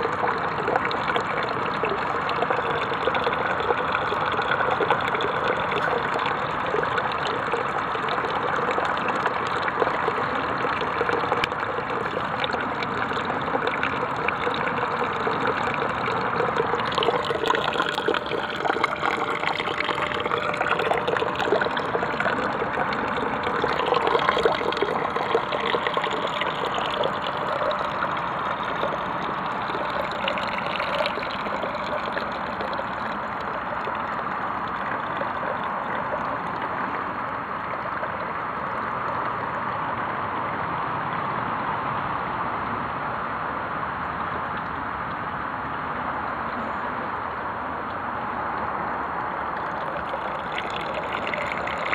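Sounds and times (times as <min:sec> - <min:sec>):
water splashing into plastic container: 0:00.0 - 0:39.3.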